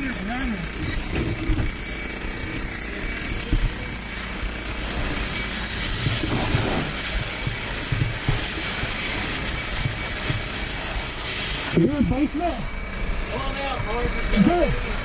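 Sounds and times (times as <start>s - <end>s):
high-pitched electronic alarm tone: 0.0s - 15.0s.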